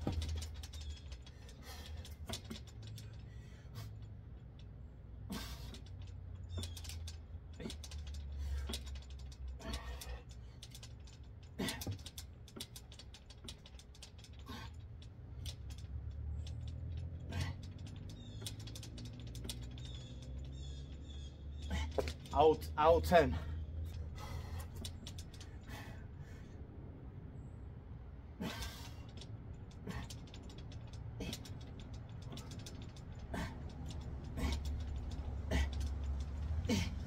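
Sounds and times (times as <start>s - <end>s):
metal dip station creaking: 5.3s - 23.3s.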